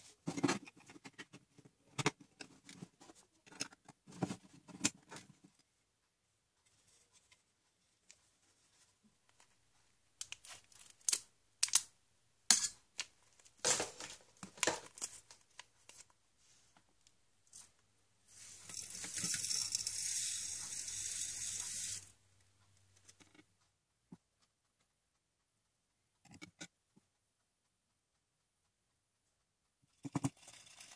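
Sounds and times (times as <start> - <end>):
powder pouring hiss: 18.4 - 22.0.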